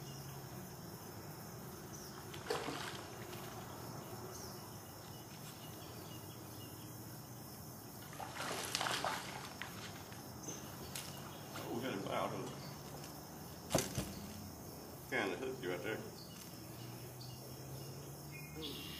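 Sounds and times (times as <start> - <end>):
fish splashing: 2.2 - 3.7, 8.0 - 10.1.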